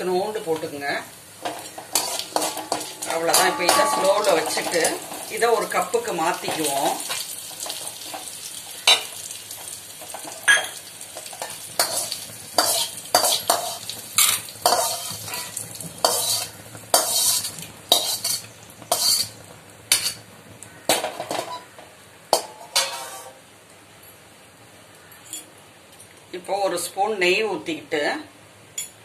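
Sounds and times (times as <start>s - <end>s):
metal skimmer scraping a pan: 1.4s - 8.3s, 10.1s - 20.2s, 22.4s - 23.4s.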